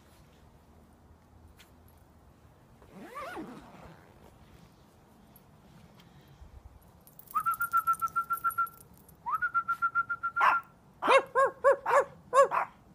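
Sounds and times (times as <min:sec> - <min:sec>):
fluttering whistles: 0:07.3 - 0:10.4.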